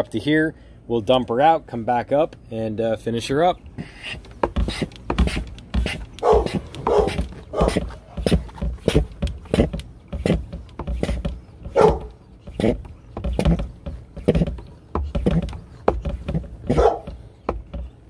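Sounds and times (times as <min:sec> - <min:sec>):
hand pump strokes: 0:03.6 - 0:18.0.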